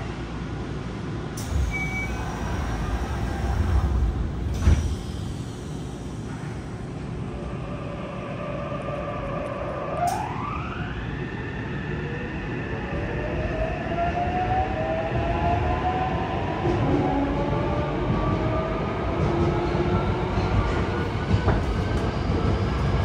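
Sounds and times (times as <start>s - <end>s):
subway doors closing with knock: 0.0s - 7.8s, 13.4s - 23.0s
short beep: 1.6s - 2.3s.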